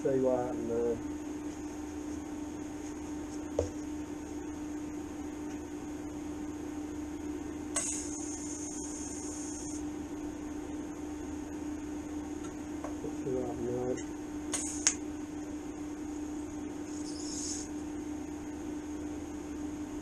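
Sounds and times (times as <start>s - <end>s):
welder electrical hum: 0.0s - 20.0s
welding torch hiss: 7.7s - 9.9s, 14.5s - 15.0s, 16.8s - 17.8s.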